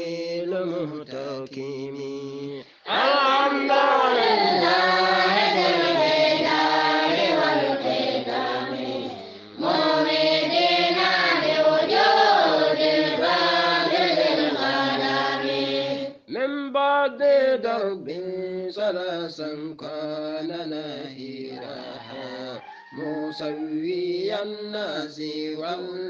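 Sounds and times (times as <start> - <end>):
single voice chanting: 2.0 - 10.1
group chanting in unison: 2.6 - 16.3.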